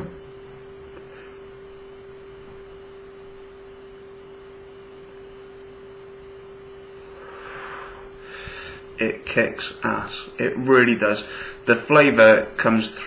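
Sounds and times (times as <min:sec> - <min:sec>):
steady low hum: 0:00.0 - 0:13.0
breathy exhale: 0:07.1 - 0:08.9, 0:11.3 - 0:11.6.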